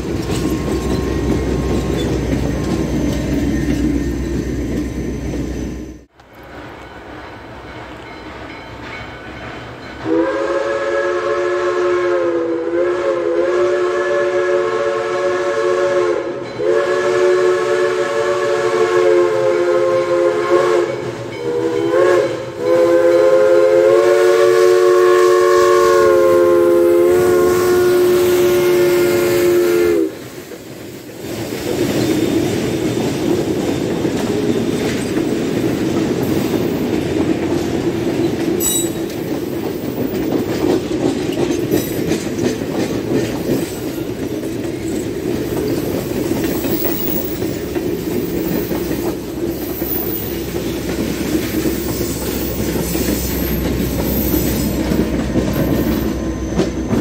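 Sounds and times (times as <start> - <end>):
train rumble and wheel clatter: 0.0 - 57.0
steam whistle blasts: 10.0 - 30.4.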